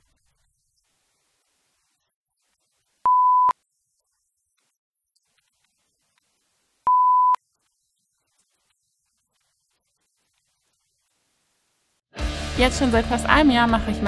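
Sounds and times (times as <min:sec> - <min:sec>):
short electronic beeps: 0:03.1 - 0:03.6, 0:06.9 - 0:07.4.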